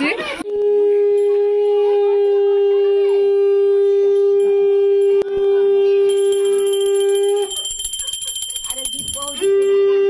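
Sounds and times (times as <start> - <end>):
conch shell blown: 0.5 - 7.4
hand bell ringing: 6.1 - 10.0.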